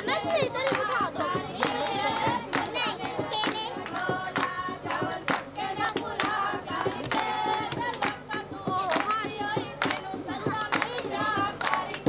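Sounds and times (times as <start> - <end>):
hand claps: 0.0 - 12.0
women singing in chorus: 0.0 - 12.0.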